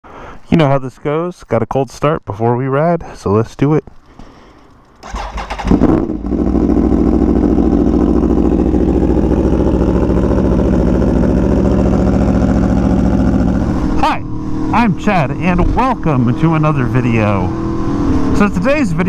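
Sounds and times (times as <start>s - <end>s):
starter cranking: 3.8s - 6.3s
motorcycle engine revving and idling: 4.9s - 19.0s.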